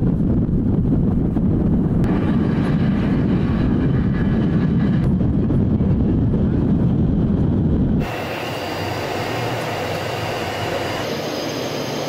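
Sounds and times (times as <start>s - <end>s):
jet engines rumbling: 0.0s - 12.0s
high jet hiss: 8.0s - 12.0s.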